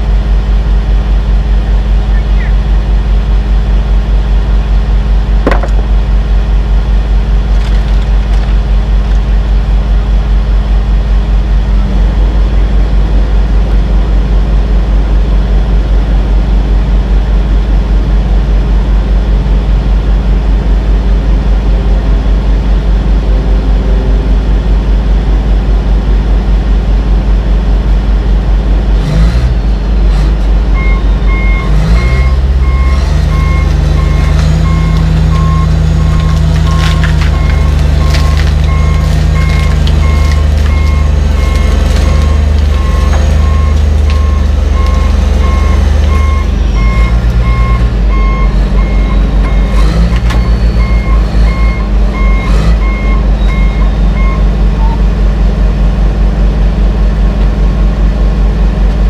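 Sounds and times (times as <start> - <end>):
diesel engine idling: 0.0 - 59.0
reverse alarm beeping: 37.4 - 55.0.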